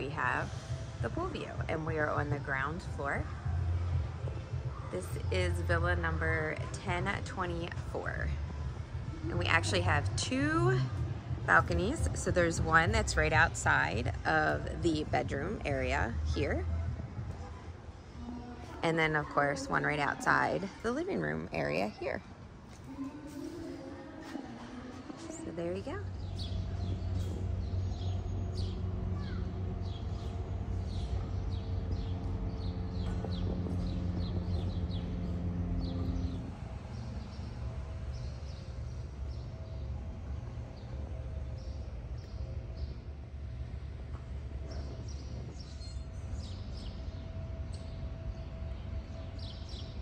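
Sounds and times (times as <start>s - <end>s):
birds chirping: 0.0s - 50.0s
steady low hum: 0.0s - 50.0s
low rumble: 24.8s - 50.0s.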